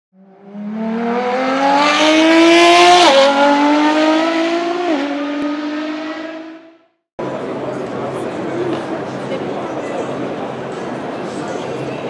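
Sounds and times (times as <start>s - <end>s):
car engine accelerating hard: 0.2s - 7.0s.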